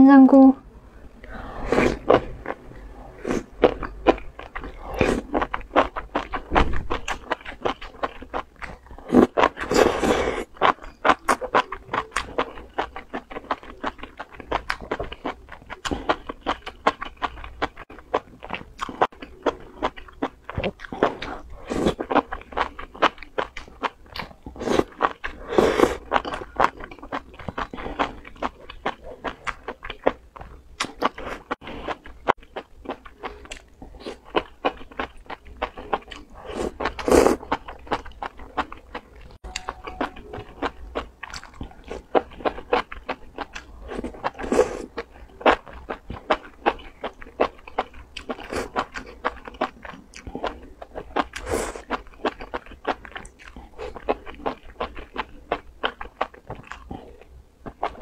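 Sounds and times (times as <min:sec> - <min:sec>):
slurping: 0:01.3 - 0:03.8
wet crunching and chewing: 0:01.8 - 0:58.0.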